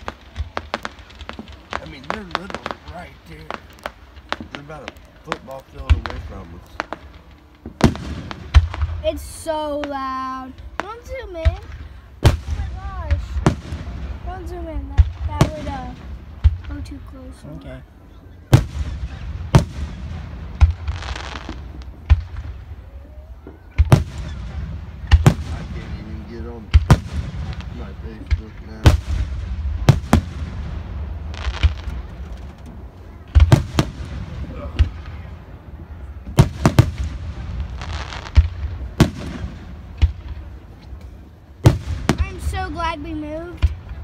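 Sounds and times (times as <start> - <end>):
firework shells booming: 0.0 - 17.2, 18.4 - 44.0
firework hiss: 18.5 - 22.8, 36.4 - 44.0.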